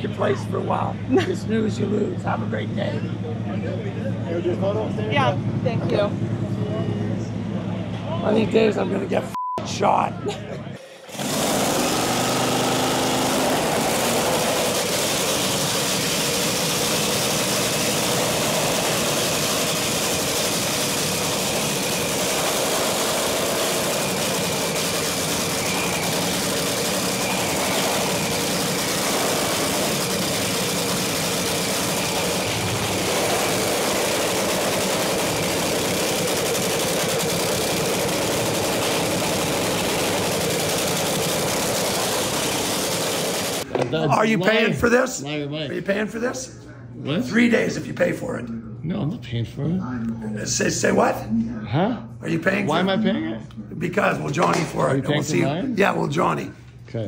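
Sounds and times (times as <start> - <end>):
engine idling: 11.1 - 43.7.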